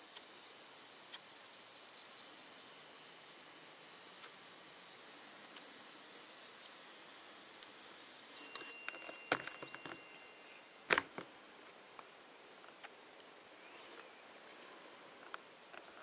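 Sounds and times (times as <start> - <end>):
faint hiss: 0.0 - 16.0
thin high whistle: 8.2 - 10.7
camera handling clicks and knocks: 8.6 - 10.0, 10.9 - 11.3.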